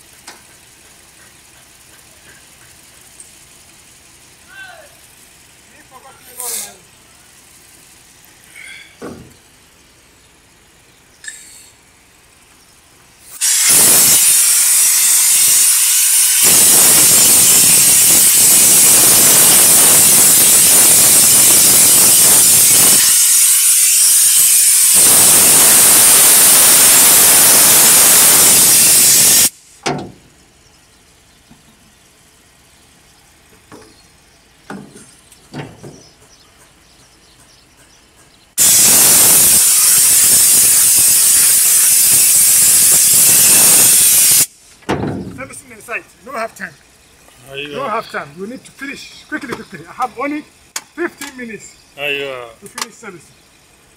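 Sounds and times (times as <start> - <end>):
compressed air hissing from nozzle: 6.4 - 6.8, 13.2 - 29.9, 38.5 - 44.8
light knocks: 34.6 - 36.8.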